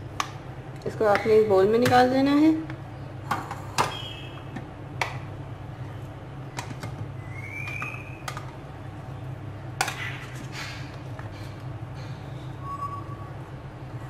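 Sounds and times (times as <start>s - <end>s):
low hum: 4.0s - 14.0s
short rising squeak: 12.4s - 13.4s.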